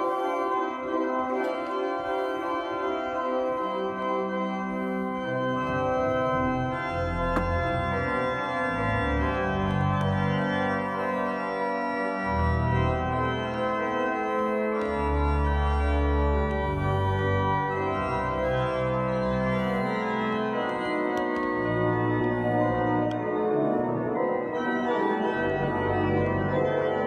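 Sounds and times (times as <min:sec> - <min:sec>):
church organ chords: 0:00.0 - 0:27.0.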